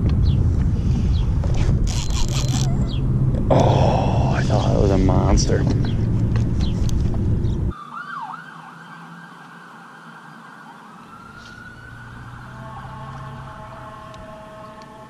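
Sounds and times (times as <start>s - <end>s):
siren wailing: 7.7s - 15.0s.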